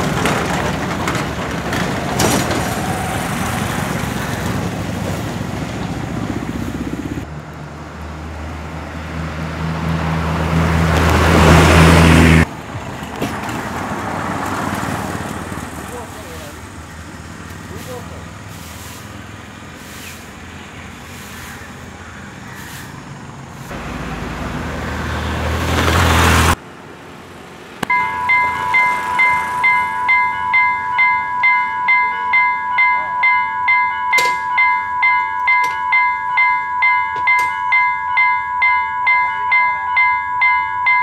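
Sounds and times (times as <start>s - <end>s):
road vehicle passing: 0.0s - 32.5s
level crossing warning bell: 27.9s - 41.0s.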